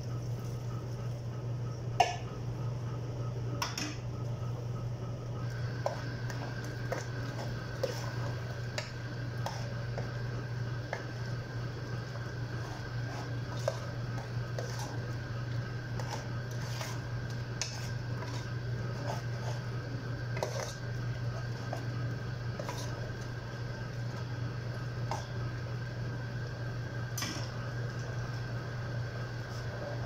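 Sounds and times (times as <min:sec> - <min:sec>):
steady low hum: 0:00.0 - 0:30.0
metal spoon scraping a pot: 0:16.0 - 0:19.7, 0:20.4 - 0:20.8.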